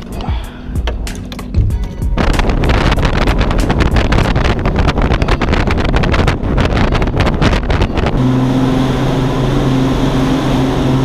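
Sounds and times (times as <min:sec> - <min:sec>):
outboard motor humming: 0:00.0 - 0:11.0
wind buffeting microphone: 0:01.0 - 0:08.2
boat hull rushing through water: 0:02.2 - 0:11.0.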